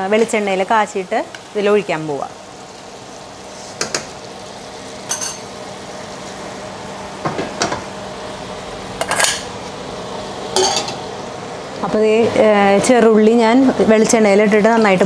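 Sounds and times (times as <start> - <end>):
metal pot clanking on grate: 5.1 - 5.5, 10.5 - 11.1.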